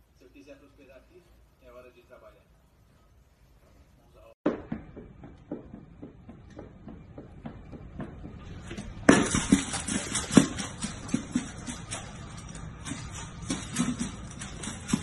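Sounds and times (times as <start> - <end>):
dog eating from metal bowl: 9.0 - 15.0.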